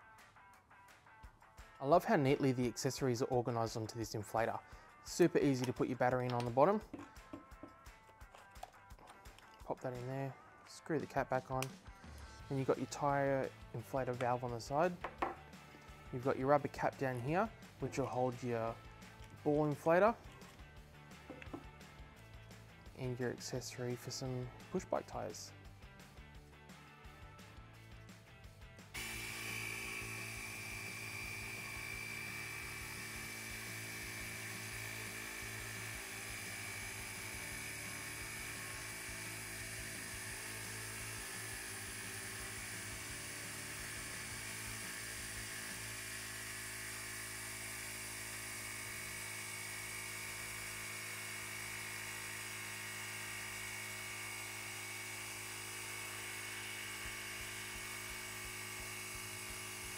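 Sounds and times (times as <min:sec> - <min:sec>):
small air compressor whining: 0:28.9 - 0:59.9.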